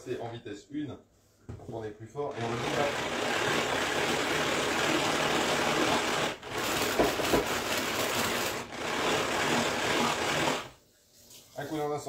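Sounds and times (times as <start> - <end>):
pull-cord chopper gears whirring: 2.3 - 10.7.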